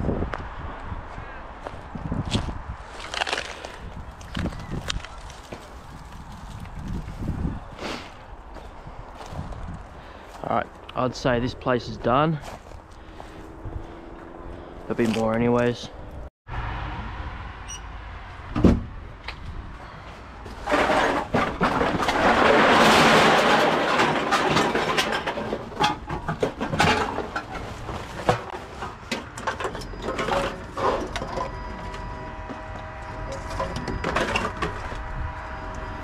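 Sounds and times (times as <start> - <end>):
vending machine steady tone: 31.3 - 36.0.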